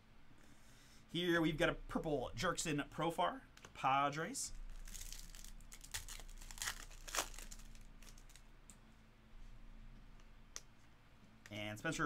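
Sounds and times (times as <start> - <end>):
foil wrapper tearing and crinkling: 4.7 - 8.4.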